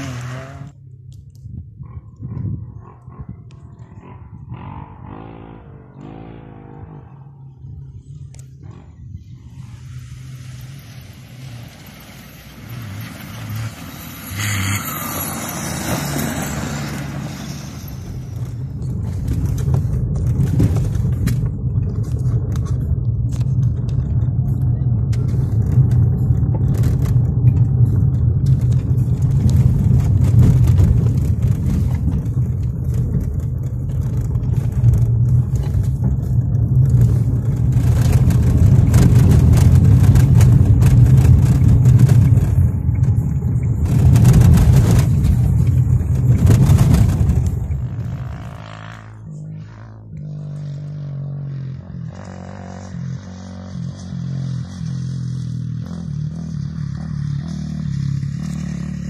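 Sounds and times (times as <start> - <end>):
car engine and tyres from inside: 0.0 - 59.0
knocks and rattles: 18.3 - 49.0.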